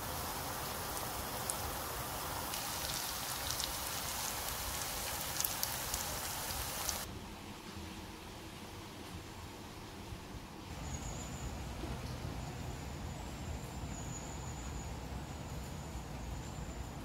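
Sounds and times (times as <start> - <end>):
steady hiss: 0.0 - 7.2.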